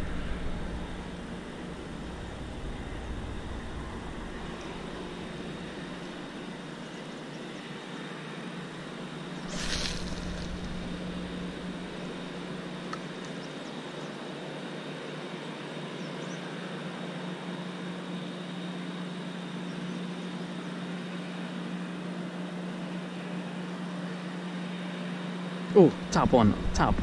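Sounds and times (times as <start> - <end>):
low mechanical hum: 0.0 - 27.0
background hiss: 9.4 - 12.6.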